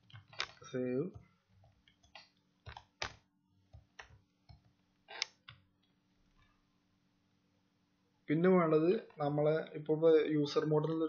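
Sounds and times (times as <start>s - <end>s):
keyboard keystrokes: 1.8s - 3.2s.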